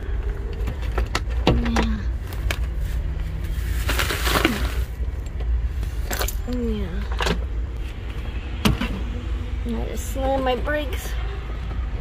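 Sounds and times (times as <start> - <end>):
road and engine rumble: 0.0 - 12.0
clicks and knocks of loose items: 0.4 - 2.8.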